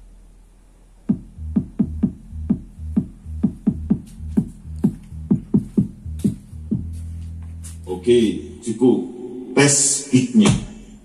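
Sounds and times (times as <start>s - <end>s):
steady bass tone: 1.0s - 9.5s
kick drum hits: 1.1s - 6.9s
electronic dance music: 1.1s - 7.0s.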